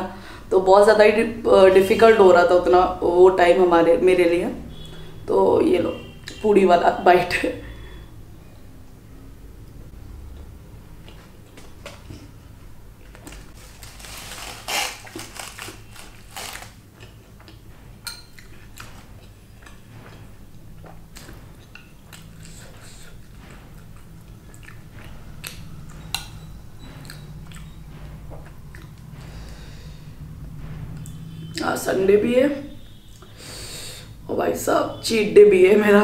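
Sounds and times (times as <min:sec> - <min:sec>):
low steady hum: 0:00.0 - 0:36.0
wet chewing: 0:13.0 - 0:29.6
crisp crunching bites: 0:13.2 - 0:16.8.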